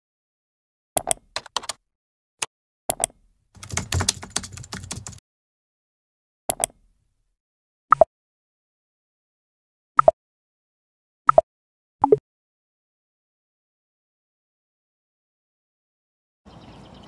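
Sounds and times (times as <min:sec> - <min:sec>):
keyboard typing: 0:01.0 - 0:01.8, 0:02.9 - 0:05.2.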